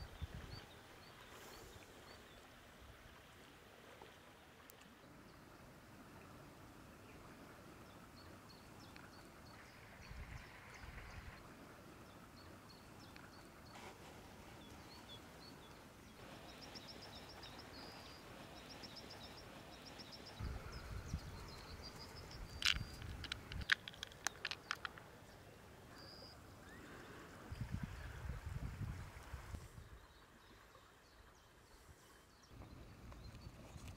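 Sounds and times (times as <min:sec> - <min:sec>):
small birds chirping: 0:14.5 - 0:27.2
plastic tackle clicking: 0:22.5 - 0:25.0.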